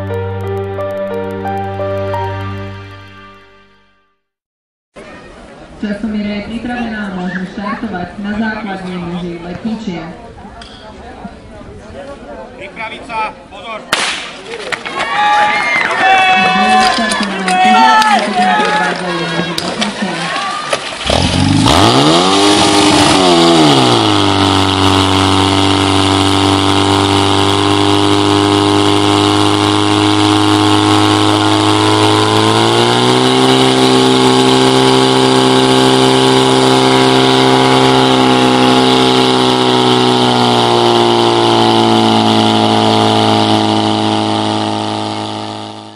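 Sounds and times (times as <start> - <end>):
fire pump engine running hard: 21.0 - 45.9.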